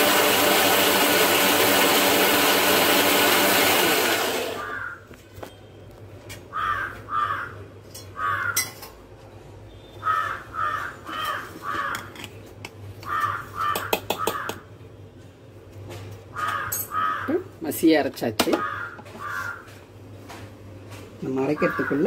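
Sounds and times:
crow cawing: 4.6s - 5.0s, 6.5s - 7.6s, 8.2s - 8.7s, 10.0s - 12.2s, 13.0s - 14.6s, 16.3s - 17.5s, 18.5s - 19.8s, 21.5s - 22.0s.

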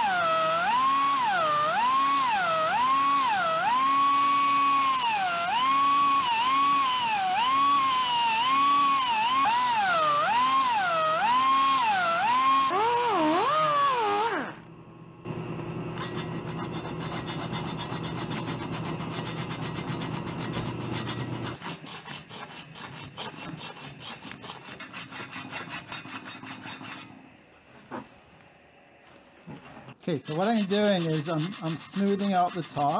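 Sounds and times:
hand saw cutting aluminum: 0.0s - 14.6s, 15.9s - 27.2s, 30.0s - 32.9s
file rasping on metal: 16.0s - 27.2s, 30.0s - 32.9s.

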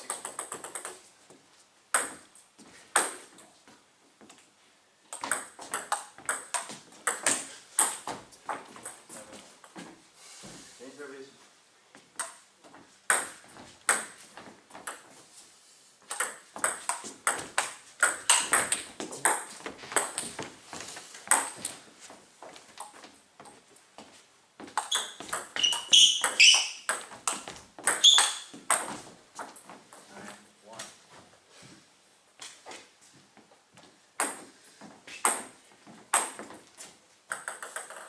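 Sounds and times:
table tennis ball pings: 16.1s - 20.2s, 24.8s - 28.9s.

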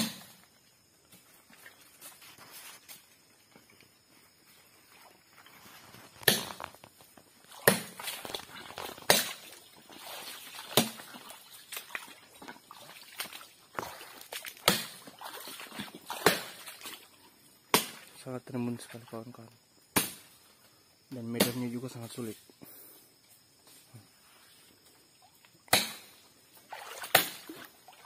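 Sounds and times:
leaves and stalks rustling: 0.8s - 17.4s
undergrowth cracking and snapping: 6.0s - 7.0s, 7.6s - 9.4s.

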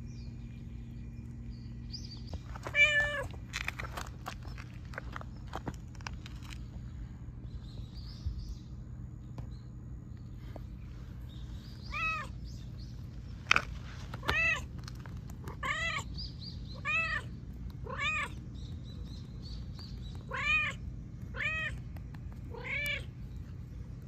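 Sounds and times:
cat meowing: 11.9s - 12.4s, 15.5s - 16.1s, 16.8s - 18.4s, 20.3s - 21.8s.

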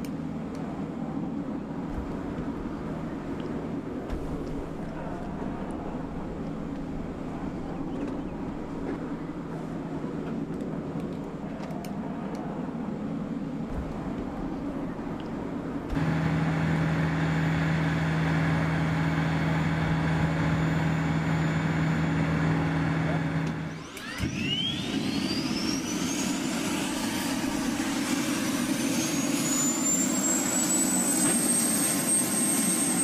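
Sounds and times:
low hum: 0.0s - 33.0s
machinery droning: 12.8s - 33.0s
high whine: 14.2s - 33.0s.

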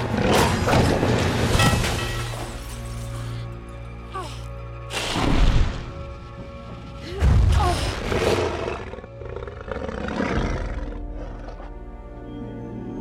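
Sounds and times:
orchestral film music: 0.0s - 13.0s.

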